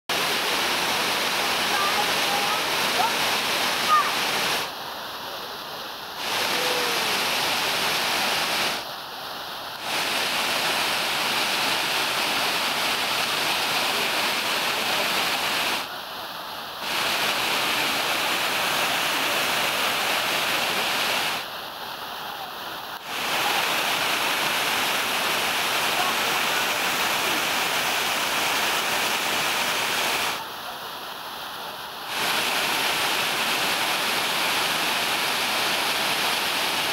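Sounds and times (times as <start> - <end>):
waterfall rushing over rock: 0.1 - 36.9.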